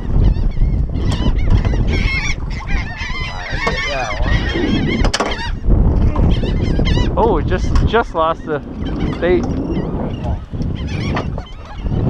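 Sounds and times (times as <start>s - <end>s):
gulls squawking: 0.0s - 12.0s
steady low rumble: 1.6s - 10.9s.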